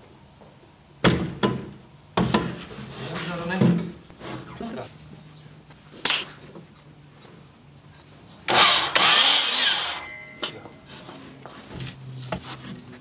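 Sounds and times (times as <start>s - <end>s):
saw blade winding down: 8.5s - 10.4s
miter saw cutting board: 8.5s - 10.5s.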